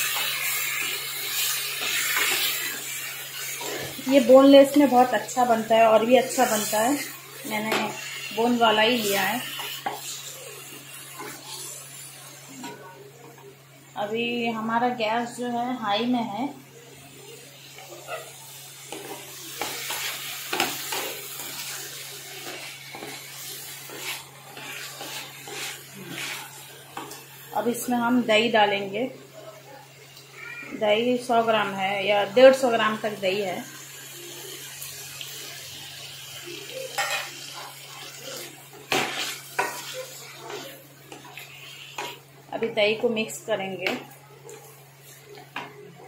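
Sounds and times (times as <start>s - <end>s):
chicken sizzling in oil: 0.0s - 46.0s
wooden spatula scraping pan: 22.4s - 27.2s.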